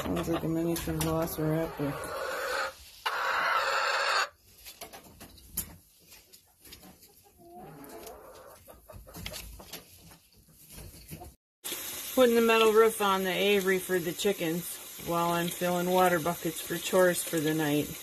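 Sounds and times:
hens calling: 1.4s - 4.4s.

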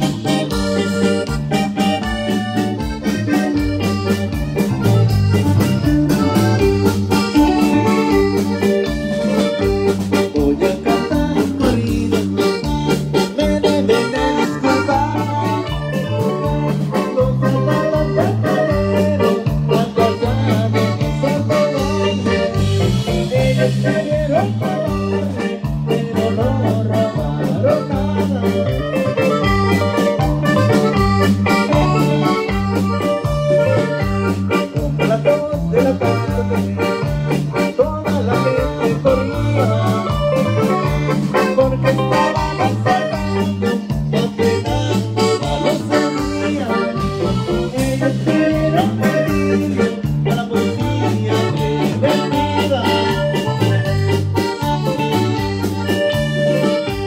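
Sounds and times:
saxophone: 0.0s - 26.3s, 26.9s - 57.0s
drums: 0.0s - 57.0s
electric bass: 0.0s - 57.0s
keyboard: 0.0s - 57.0s.

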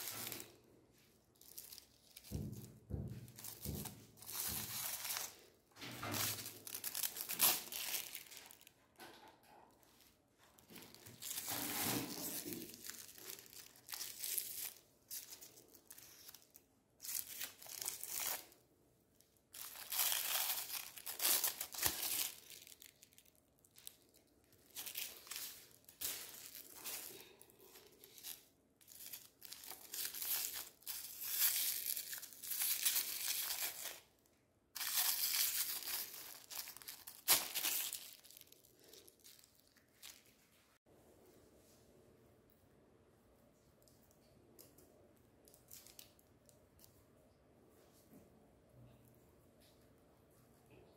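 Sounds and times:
plastic wrappers crinkling and tearing: 0.0s - 18.6s, 19.2s - 34.2s, 34.8s - 40.6s, 45.4s - 46.9s.

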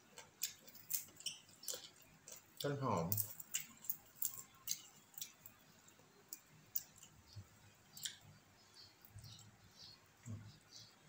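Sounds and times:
wet chewing and lip smacks: 0.1s - 8.3s.

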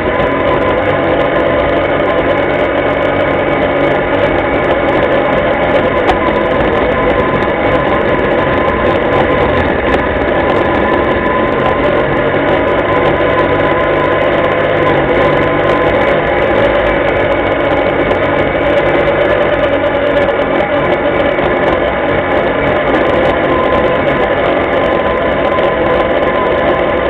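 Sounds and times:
atv engine running: 0.0s - 27.0s.

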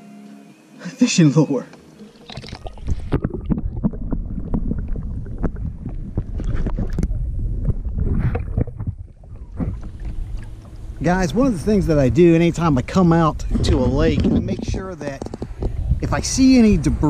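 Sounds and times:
water sloshing and splashing: 2.0s - 12.1s
low rumble: 2.6s - 17.0s.

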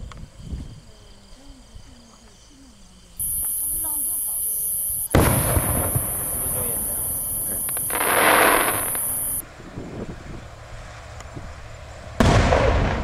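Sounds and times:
firework hissing: 3.2s - 9.4s
firework boom: 5.1s - 9.4s, 12.2s - 13.0s.

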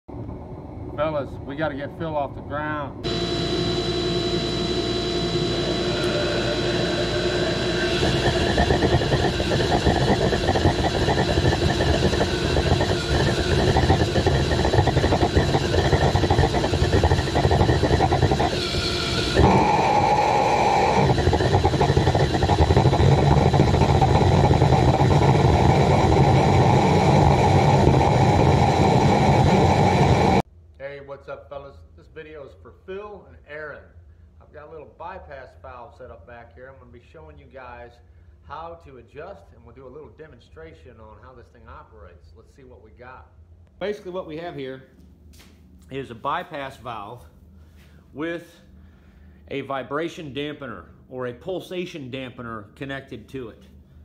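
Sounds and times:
oil burner roaring: 2.8s - 30.5s.

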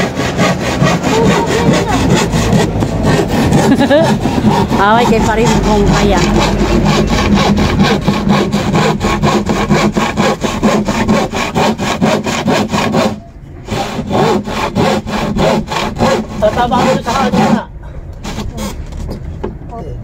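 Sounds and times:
hand saw cutting a board: 0.0s - 18.8s.

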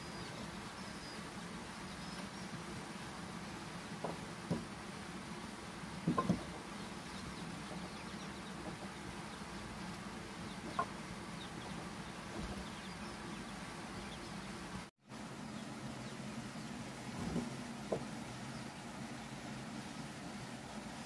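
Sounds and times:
steady low hum: 0.0s - 21.0s
chickens clucking: 6.0s - 14.7s.

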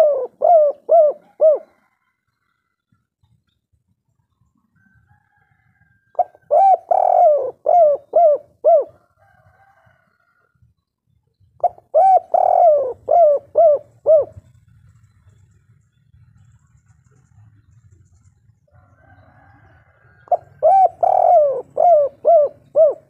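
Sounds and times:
dove cooing: 0.0s - 2.1s, 6.1s - 10.0s, 11.6s - 15.3s, 19.0s - 23.0s.

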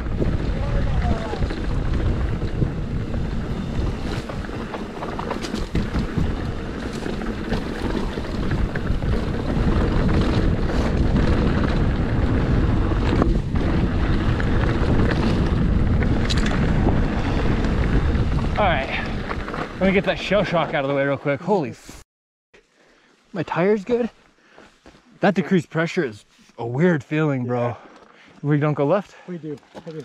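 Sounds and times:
bike clattering over rough ground: 0.0s - 20.8s
wind rumbling on microphone: 0.0s - 20.8s.

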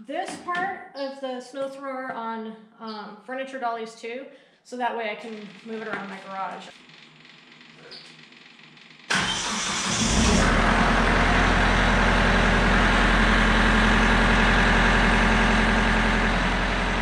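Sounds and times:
tractor diesel engine starting: 6.8s - 17.0s
diesel engine idling: 9.1s - 17.0s.

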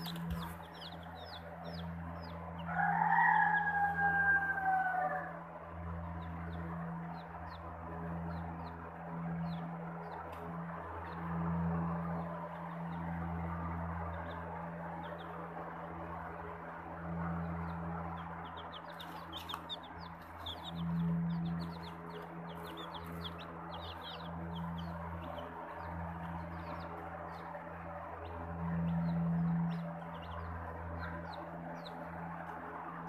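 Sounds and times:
chicks peeping: 0.0s - 33.0s
steady low hum: 0.0s - 33.0s.

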